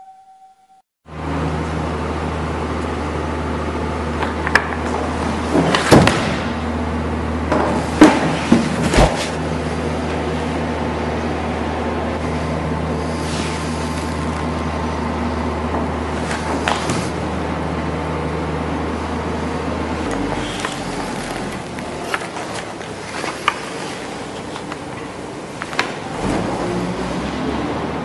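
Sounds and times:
room ventilation hum: 1.1s - 28.0s.

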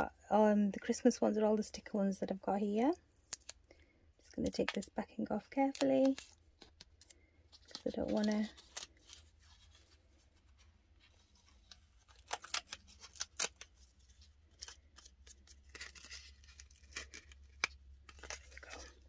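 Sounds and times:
tape backing being peeled: 3.2s - 3.7s, 5.6s - 19.0s
sharp ticks of paper and tape: 5.5s - 9.2s.

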